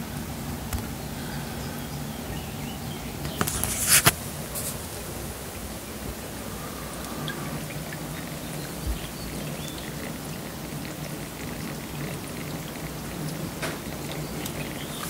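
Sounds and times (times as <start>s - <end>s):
water rushing down wall: 3.1s - 15.0s
water drips and ticks: 5.5s - 15.0s.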